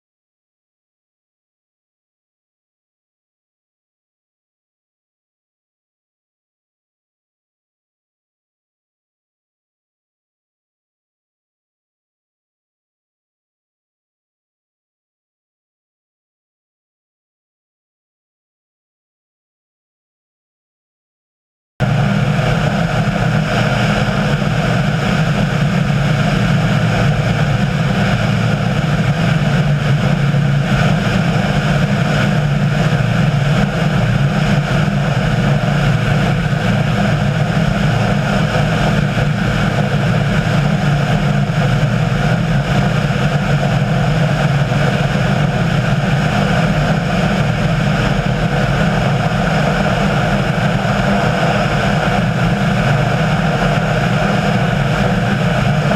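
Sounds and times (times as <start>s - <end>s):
engine running steadily: 21.8s - 55.9s.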